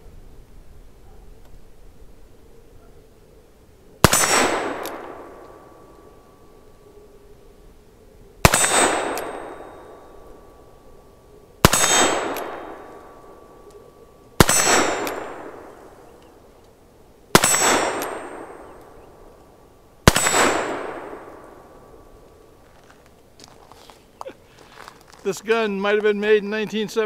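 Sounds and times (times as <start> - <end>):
revolver gunshots with echo: 4.0 - 6.4, 8.4 - 10.7, 11.6 - 16.4, 17.3 - 22.3.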